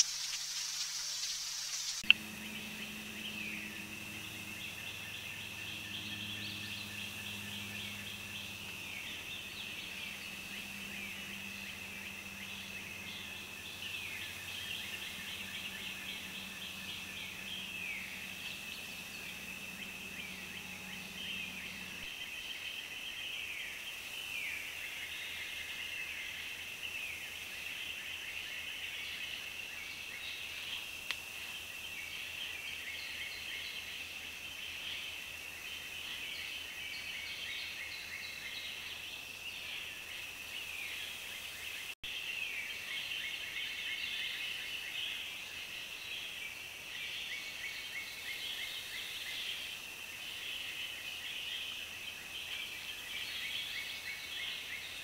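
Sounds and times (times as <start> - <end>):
low hum: 1.8 - 22.1
high-pitched drone: 2.0 - 22.1.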